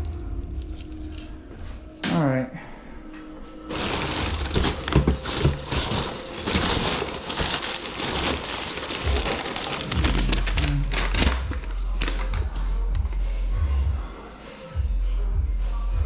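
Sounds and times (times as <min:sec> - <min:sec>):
rustling paper and packing peanuts: 0:03.6 - 0:12.6.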